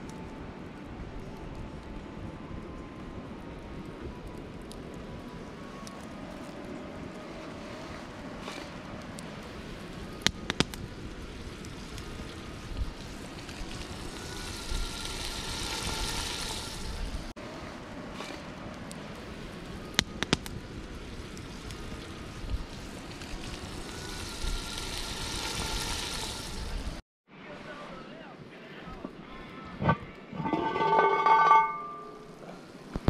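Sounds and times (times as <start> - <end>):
campfire crackling and popping: 0.0 - 27.0
meat sizzling in a pot: 12.0 - 17.1, 21.6 - 26.9.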